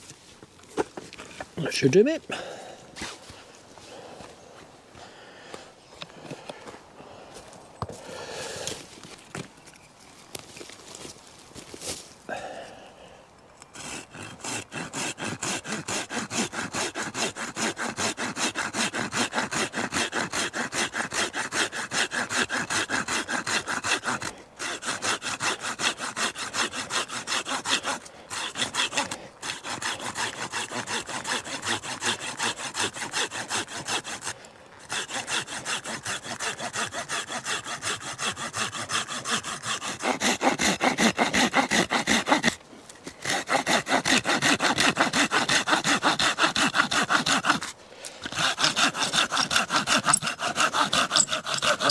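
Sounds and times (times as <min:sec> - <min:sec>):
hand saw cutting wood: 0:03.0 - 0:03.4, 0:13.7 - 0:51.9.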